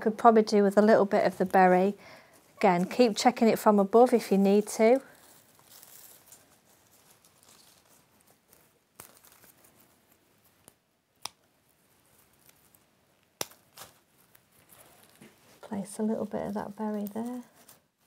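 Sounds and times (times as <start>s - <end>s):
foliage rustling: 1.1s - 10.2s, 13.4s - 18.0s.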